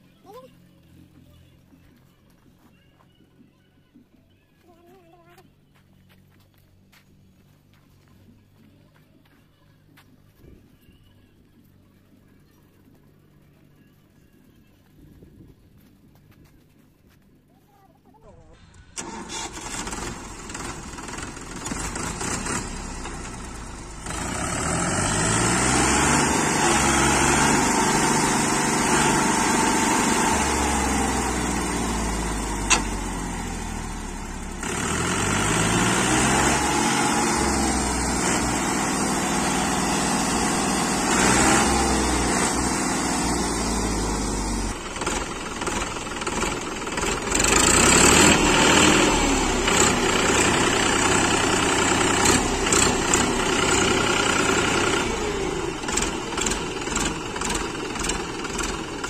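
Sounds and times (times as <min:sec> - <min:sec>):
tractor diesel engine straining: 0:18.4 - 0:59.0.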